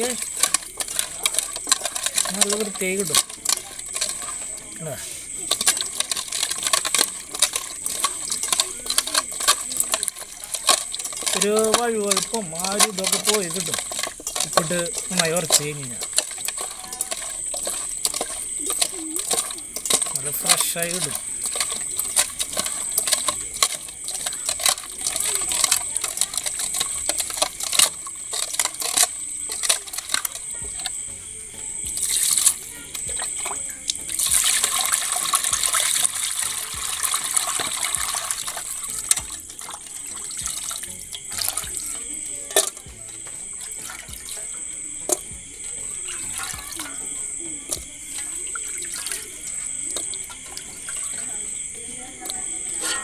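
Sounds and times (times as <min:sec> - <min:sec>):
fish clinking against metal bowl: 0:00.0 - 0:53.0
hands sloshing fish in water: 0:32.0 - 0:32.6, 0:34.1 - 0:42.8, 0:47.7 - 0:51.8.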